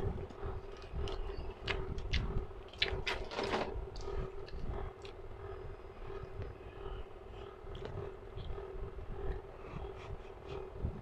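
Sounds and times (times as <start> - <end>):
steady hum: 0.0 - 11.0
person chewing noodles: 0.6 - 3.3, 3.9 - 5.3, 7.7 - 8.6.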